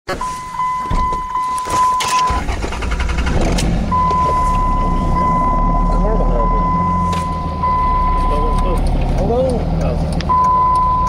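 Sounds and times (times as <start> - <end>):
high electronic tone: 3.9 - 8.8.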